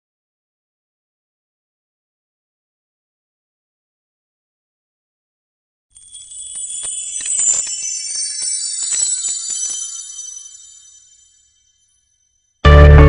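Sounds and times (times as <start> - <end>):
tinkling bell chimes: 6.0 - 12.5.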